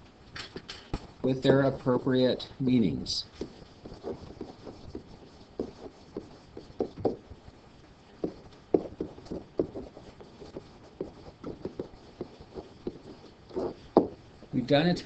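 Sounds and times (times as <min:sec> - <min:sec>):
stylus tapping on whiteboard: 0:03.4 - 0:07.2, 0:08.2 - 0:14.2.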